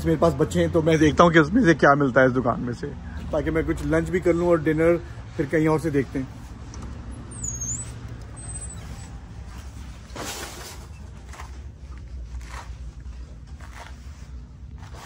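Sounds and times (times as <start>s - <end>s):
footsteps on shop floor: 8.8s - 15.0s.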